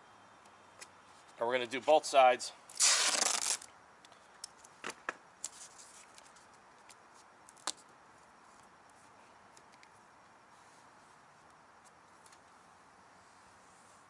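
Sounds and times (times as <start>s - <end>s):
faint hiss: 0.0s - 14.0s
masking tape crackling: 2.7s - 3.7s.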